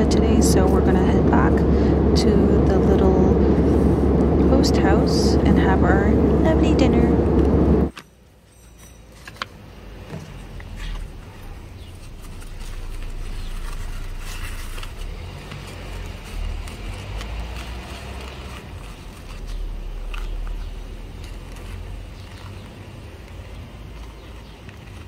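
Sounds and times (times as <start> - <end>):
low rumble: 0.0 - 7.9
paper rustling: 10.3 - 25.0.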